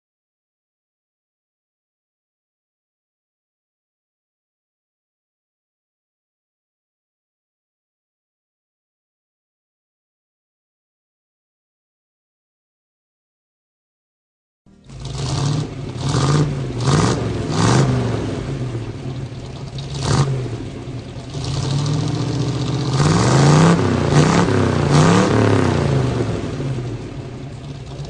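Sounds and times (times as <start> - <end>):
car engine revving: 14.8 - 28.0.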